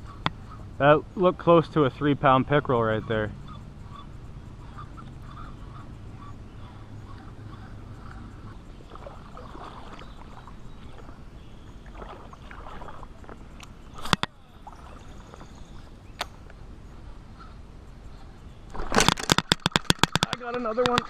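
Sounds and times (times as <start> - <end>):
water sloshing and lapping: 5.3 - 16.0
sharp clicks: 18.7 - 21.0.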